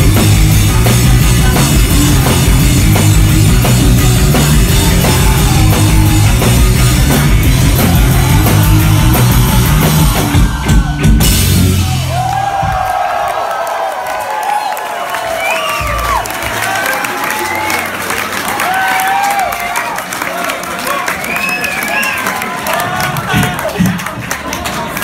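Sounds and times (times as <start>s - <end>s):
live rock band playing: 0.0s - 12.4s
crowd cheering: 0.0s - 25.0s.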